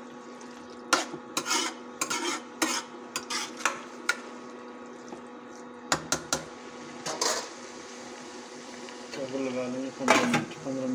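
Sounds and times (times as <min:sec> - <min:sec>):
metal spoon scraping a pot: 0:00.9 - 0:04.2, 0:07.1 - 0:07.5.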